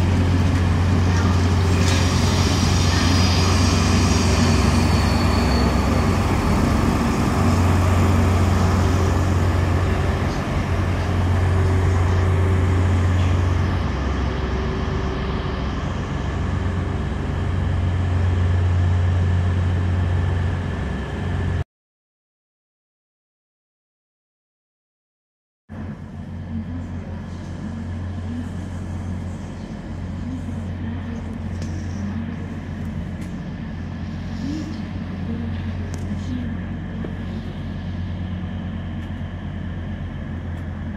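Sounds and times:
diesel engine hum: 0.0s - 21.6s, 25.7s - 40.9s
train wheels rumbling on rails: 0.0s - 21.6s, 25.7s - 40.9s
high squeal: 1.6s - 7.6s.

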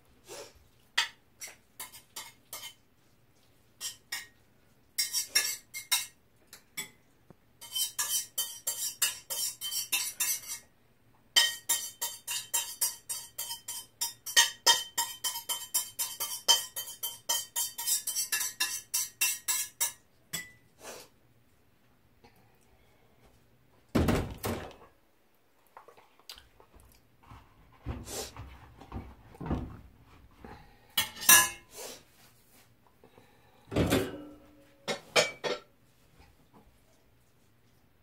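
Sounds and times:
metal utensil clinking on pot: 7.6s - 10.6s, 11.4s - 20.6s, 31.0s - 31.7s.

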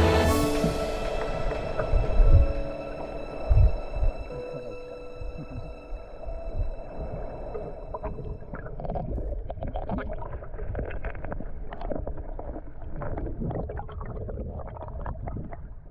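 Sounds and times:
stream rushing over rocks: 0.0s - 4.6s.

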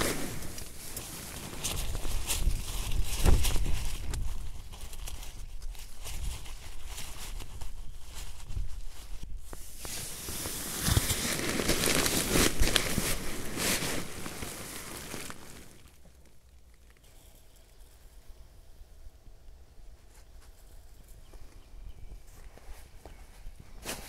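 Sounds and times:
tent fabric crinkling and rustling: 0.0s - 17.5s, 19.9s - 24.0s
small irregular clicks: 15.1s - 18.5s.

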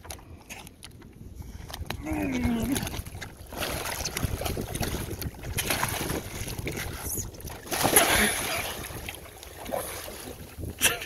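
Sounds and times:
water splashing and sloshing: 0.0s - 11.0s
big splash into water: 7.6s - 8.9s.

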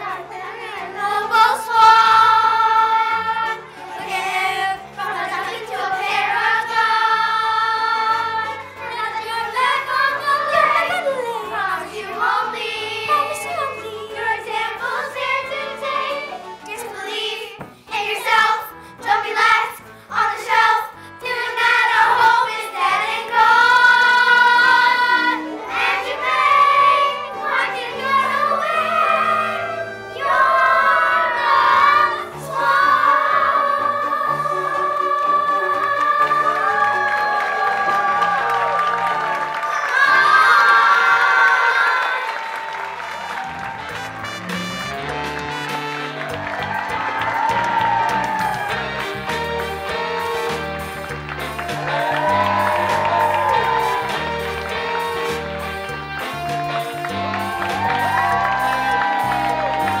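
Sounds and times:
children's chorus singing: 0.0s - 43.9s, 46.1s - 55.7s, 56.5s - 60.0s
instrumental accompaniment: 42.9s - 60.0s.

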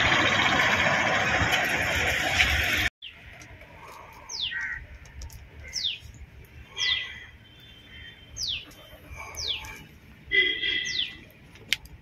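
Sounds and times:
bird chirps: 6.7s - 9.9s, 10.6s - 11.3s.

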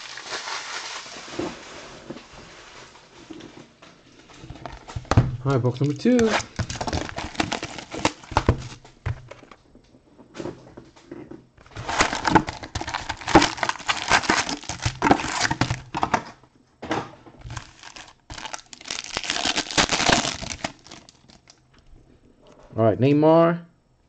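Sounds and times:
plastic wrapping tearing: 0.0s - 2.9s, 4.4s - 9.3s, 11.6s - 16.3s, 17.4s - 21.6s
foil packs crinkling: 0.0s - 3.4s, 4.3s - 9.6s, 11.6s - 16.3s, 17.4s - 21.6s.

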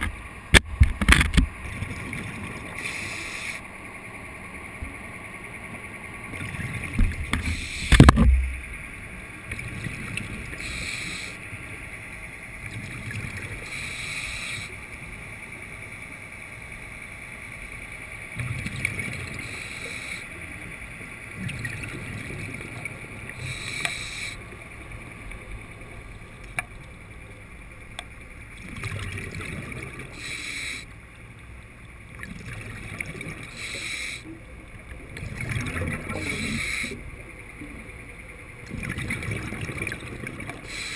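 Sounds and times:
diver breathing hiss: 2.8s - 3.7s, 7.4s - 8.0s, 10.4s - 11.5s, 13.5s - 14.8s, 19.3s - 20.4s, 23.4s - 24.4s, 30.1s - 31.0s, 33.4s - 34.3s, 36.1s - 37.1s, 40.6s - 40.9s
bubbling exhaled air: 35.1s - 37.1s.

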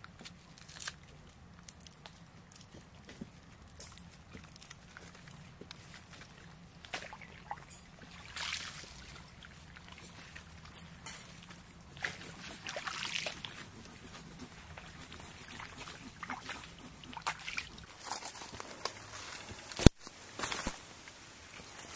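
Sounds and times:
dry leaves crackling: 0.2s - 21.9s
water lapping at shore: 4.4s - 18.5s.

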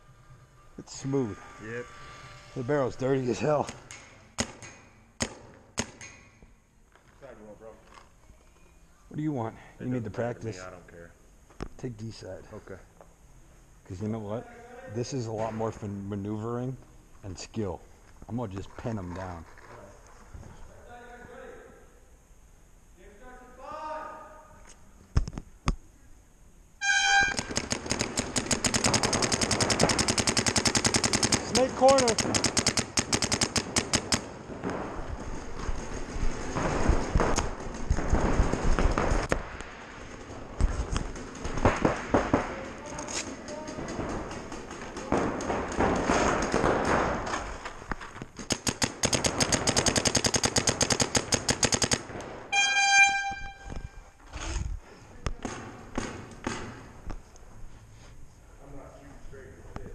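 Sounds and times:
buzzer steady tone: 0.0s - 3.3s, 26.8s - 27.5s, 52.5s - 54.1s
paintball markers firing rapidly: 3.4s - 6.1s, 27.1s - 52.4s
short horn blast: 26.8s - 27.4s, 52.5s - 54.1s.

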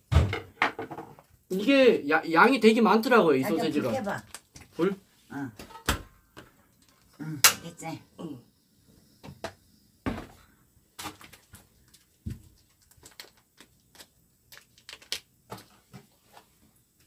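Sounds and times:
objects thumping on table: 0.1s - 1.2s, 9.2s - 10.4s
plastic wrapper crackling: 11.0s - 15.3s.

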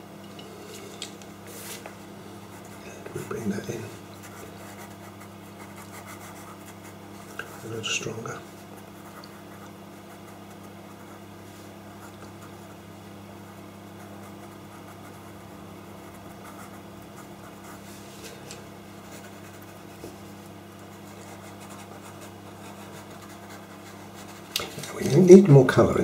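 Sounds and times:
low electrical hum: 0.0s - 26.0s
pencil scratching on paper: 4.2s - 7.9s, 13.5s - 18.1s, 19.0s - 20.0s, 21.1s - 24.5s.

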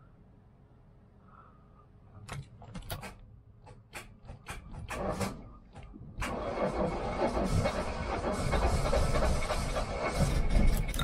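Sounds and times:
starter motor clicking: 4.9s - 11.0s.

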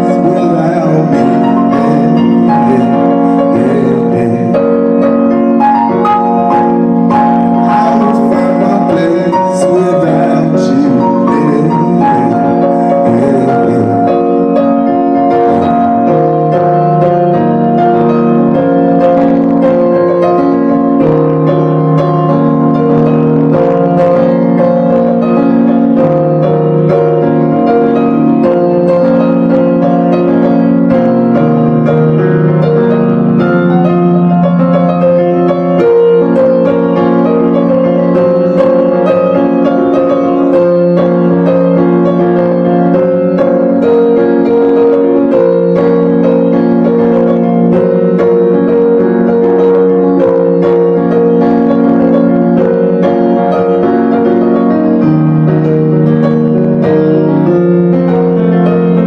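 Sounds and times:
sustained keyboard chords: 0.0s - 59.0s.

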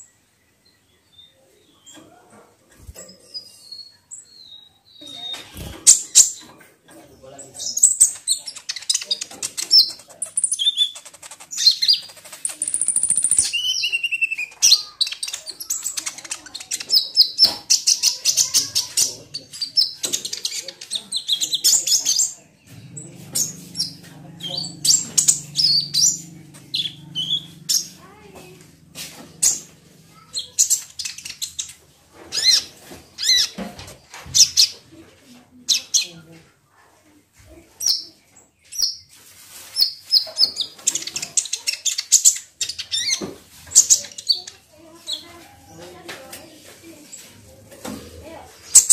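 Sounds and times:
bird chirping and trilling: 2.8s - 6.5s, 7.5s - 33.6s, 37.8s - 39.1s, 39.7s - 45.4s.

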